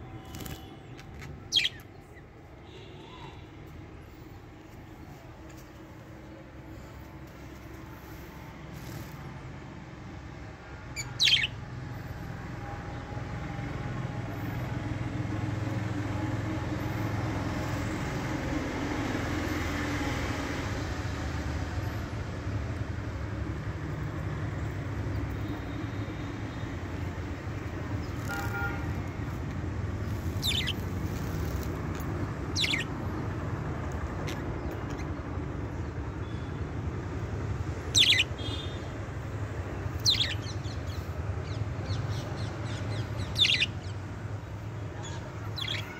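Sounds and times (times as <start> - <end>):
budgies chirping: 1.5 - 1.9, 11.0 - 11.6, 30.2 - 31.7, 32.5 - 32.9, 37.9 - 38.3, 40.0 - 41.0, 42.9 - 44.0, 45.1 - 45.9.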